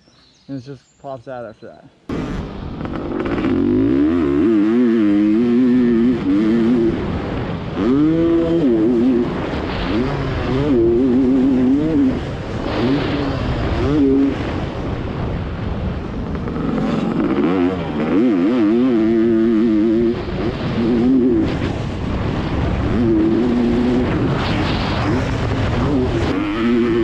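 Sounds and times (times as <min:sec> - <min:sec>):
motocross bike engine revving: 0:02.1 - 0:27.0
wind rushing over microphone: 0:02.1 - 0:27.0.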